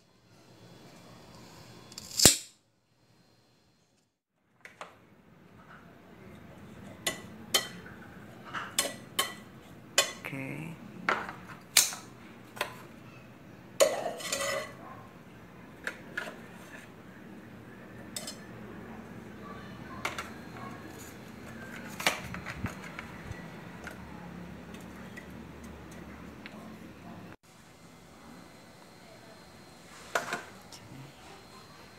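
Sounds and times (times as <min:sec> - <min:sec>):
metal tongs clinking on a pot: 0:07.0 - 0:10.2, 0:13.8 - 0:14.8, 0:18.1 - 0:18.5.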